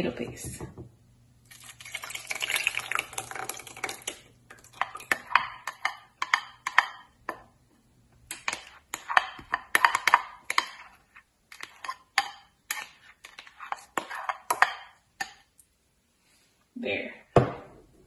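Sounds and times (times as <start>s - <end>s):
spatula scraping glass bowl: 8.6s - 15.4s.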